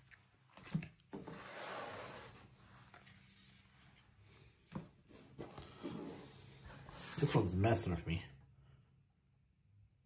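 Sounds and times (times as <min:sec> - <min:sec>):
cards rubbing and sliding: 0:01.2 - 0:03.6.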